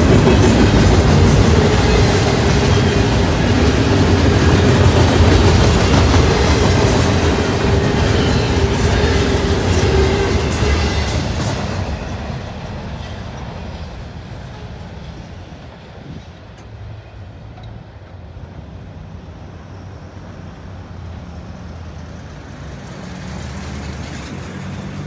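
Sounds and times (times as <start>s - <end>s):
truck driving across tracks: 0.0s - 25.0s
road vehicle engine hum: 15.0s - 25.0s.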